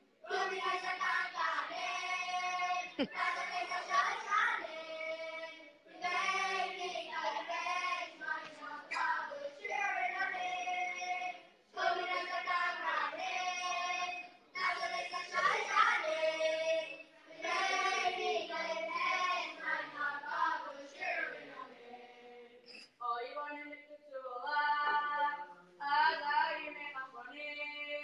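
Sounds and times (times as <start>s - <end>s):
boys' choir singing: 0.3s - 22.6s.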